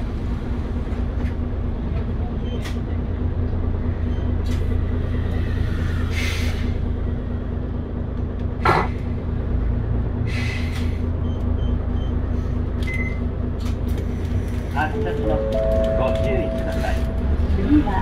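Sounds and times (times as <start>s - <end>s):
bus diesel engine idling: 0.0s - 18.0s
sharp air puff: 6.1s - 6.8s.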